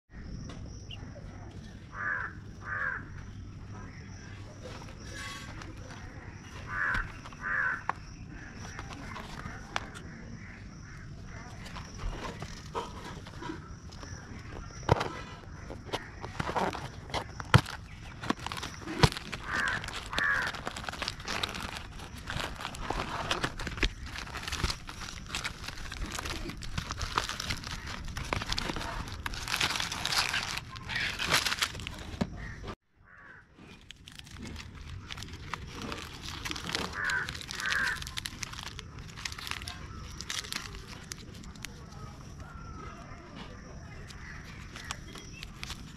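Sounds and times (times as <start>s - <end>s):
bird calling: 0.1s - 33.8s, 35.0s - 45.9s
crow cawing: 1.9s - 3.2s, 6.6s - 8.8s, 19.3s - 21.6s, 32.4s - 33.5s, 36.5s - 38.7s
plastic wrappers crinkling: 4.7s - 10.1s, 11.2s - 32.7s, 33.6s - 43.1s, 43.9s - 45.9s
cardboard carton being torn open: 16.0s - 32.2s, 33.8s - 41.7s.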